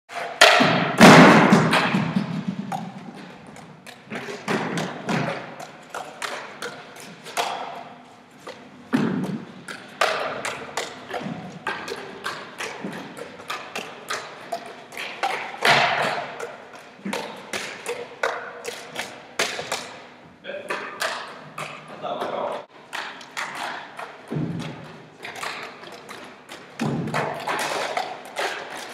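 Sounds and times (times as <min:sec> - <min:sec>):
juggling clubs smacking into hands: 0:00.1 - 0:20.1, 0:20.7 - 0:28.9
loud thumps: 0:00.4 - 0:03.2.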